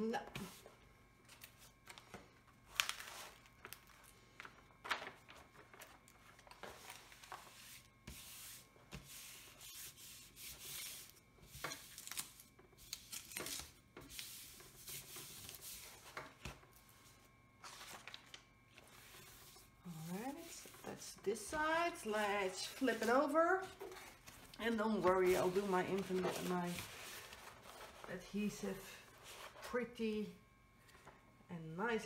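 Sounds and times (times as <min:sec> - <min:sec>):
hands rubbing paper sheet: 0:18.8 - 0:24.1.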